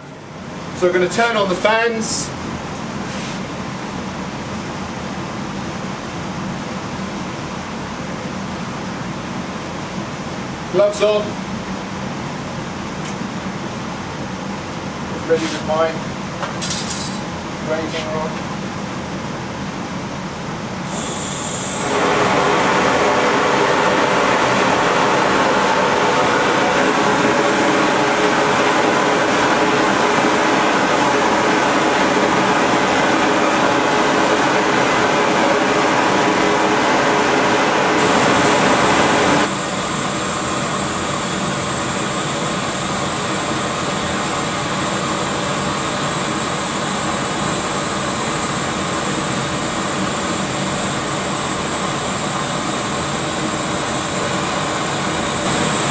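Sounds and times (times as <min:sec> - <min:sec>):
brazing torch rushing hiss: 0:20.8 - 0:55.9.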